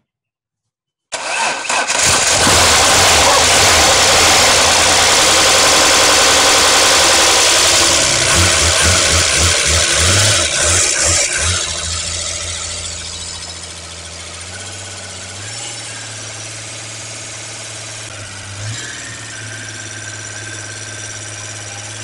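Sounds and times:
engine running fast: 1.8 - 22.0.

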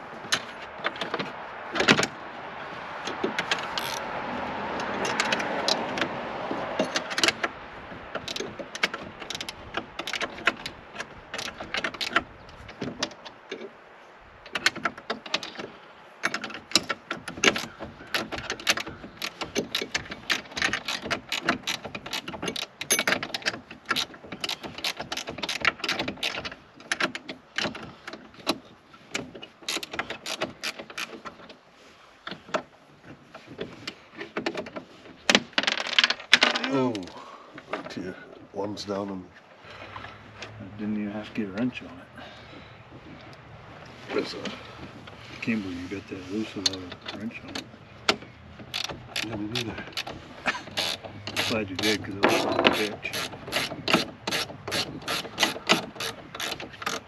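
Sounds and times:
metal wrenches clinking: 3.1 - 7.6, 16.2 - 31.4, 44.1 - 57.0.

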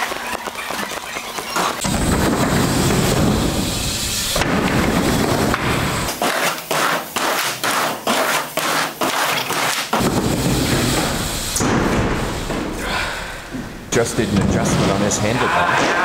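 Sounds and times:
knocks and clatters: 0.0 - 3.7
bike tyres rumbling on ramps: 0.0 - 6.1, 9.9 - 15.3.

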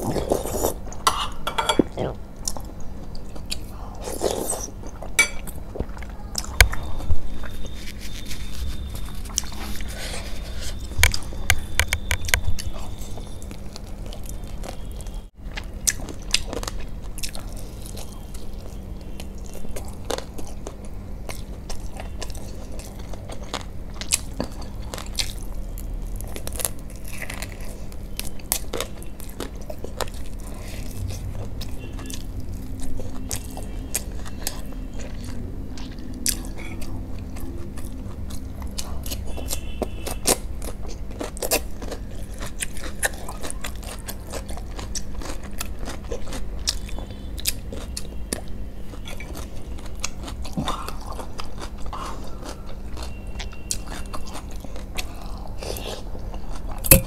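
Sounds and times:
chewing and crunching food: 0.0 - 1.0, 1.8 - 57.0
faint steady hum: 0.0 - 57.0.

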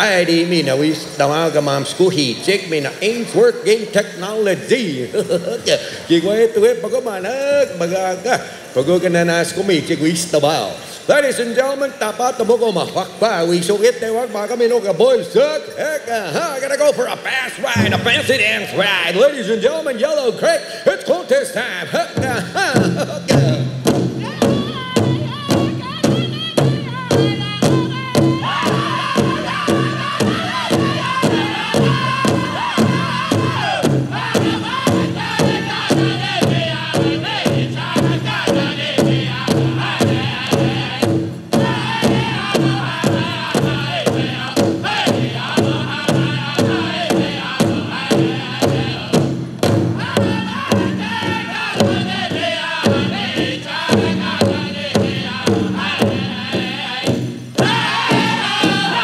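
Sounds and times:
large bass drum beats: 17.8 - 18.8, 22.2 - 59.0
high-pitched group singing: 24.2 - 59.0.

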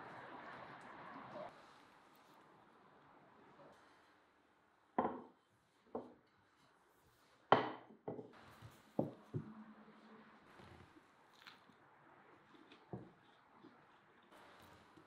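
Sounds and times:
dishes knocking on wooden table: 5.0 - 5.3, 7.5 - 8.3.

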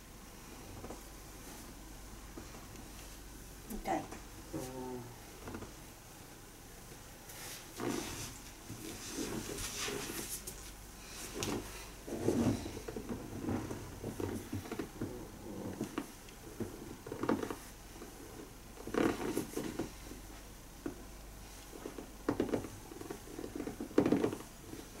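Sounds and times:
towels and cloth rustling: 6.8 - 25.0
shuffling on padded table: 7.2 - 15.1.

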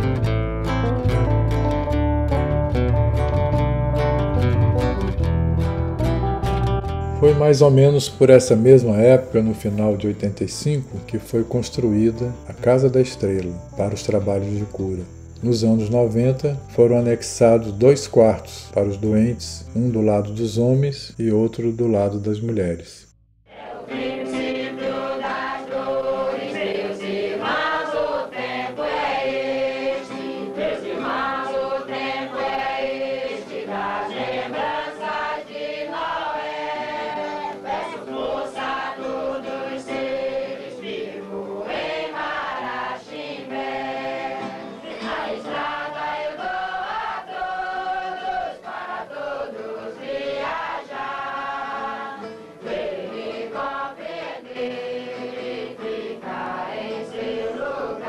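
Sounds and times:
group singing a hymn: 23.5 - 58.0.

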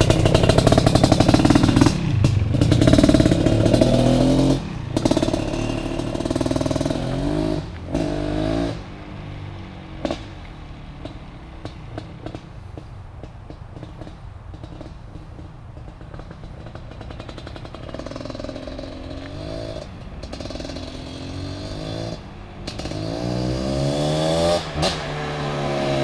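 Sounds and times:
dirt bike engine revving: 0.0 - 9.0, 16.2 - 26.0.

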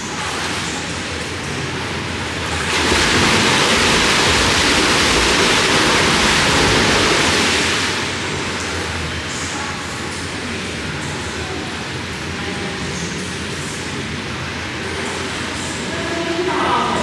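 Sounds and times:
swimmer splashing in pool: 2.4 - 8.8.

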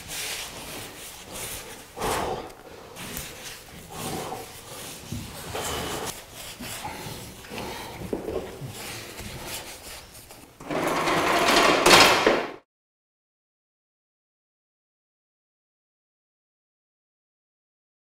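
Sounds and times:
paintbrush scrubbing wet paint: 0.0 - 10.6.

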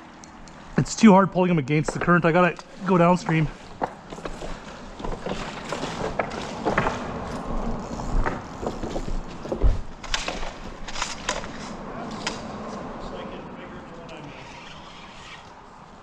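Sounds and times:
footsteps on loose rocks: 1.8 - 10.9.

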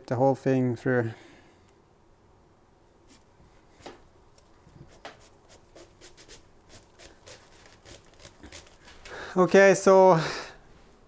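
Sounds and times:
faint rubbing of cable in sleeve: 3.0 - 9.2.

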